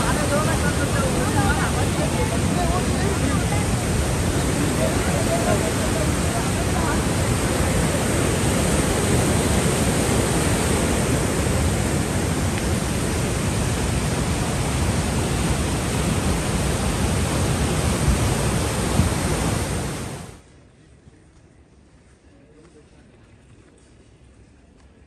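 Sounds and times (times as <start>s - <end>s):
stream rushing over boulders: 0.0s - 20.4s.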